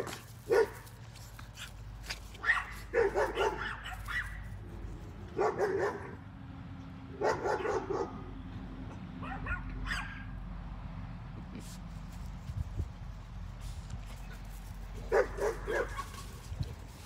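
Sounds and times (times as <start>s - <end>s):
small dogs yapping: 0.0s - 4.6s, 14.2s - 17.0s.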